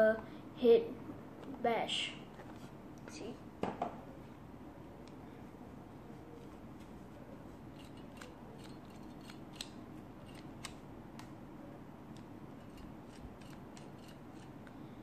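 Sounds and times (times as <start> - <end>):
plastic toy parts clicking: 7.8 - 11.3, 12.6 - 14.5.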